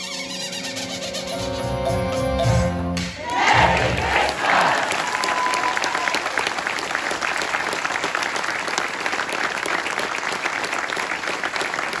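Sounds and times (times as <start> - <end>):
audience applauding: 3.2 - 12.0.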